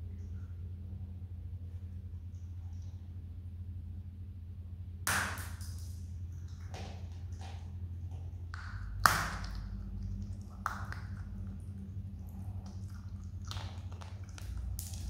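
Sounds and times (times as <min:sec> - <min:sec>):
steady low hum: 0:00.0 - 0:15.0
animal crunching peanuts: 0:07.1 - 0:15.0.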